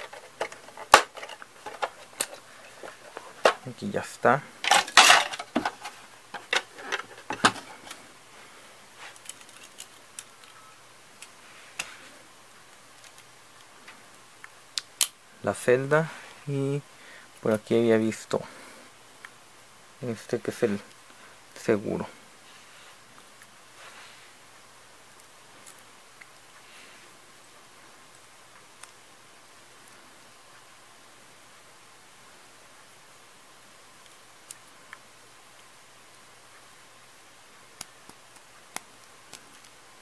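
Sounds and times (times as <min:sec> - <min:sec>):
room hiss: 0:00.0 - 0:40.0
soft rustle: 0:06.7 - 0:10.7, 0:22.4 - 0:24.5.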